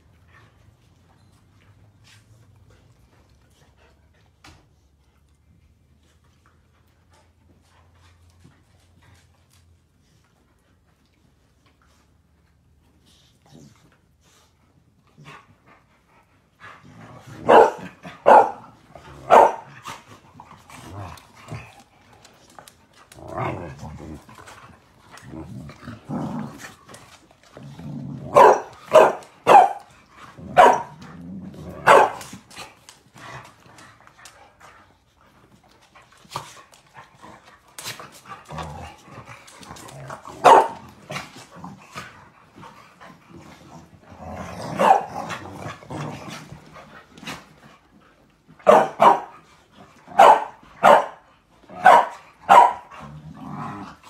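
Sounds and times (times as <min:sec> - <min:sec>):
dogs growling: 0:15.0 - 0:48.5, 0:51.6 - 0:54.0
dogs barking: 0:17.4 - 0:18.6, 0:19.3 - 0:19.7, 0:28.3 - 0:29.9, 0:30.5 - 0:30.9, 0:31.8 - 0:32.2, 0:40.4 - 0:40.8, 0:44.8 - 0:45.1, 0:48.6 - 0:49.3, 0:50.1 - 0:51.2, 0:51.8 - 0:52.9.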